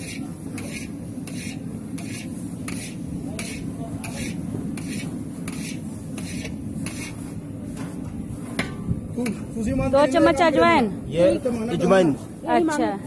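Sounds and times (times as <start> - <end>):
hands rubbing dough on metal tray: 0.0 - 8.6.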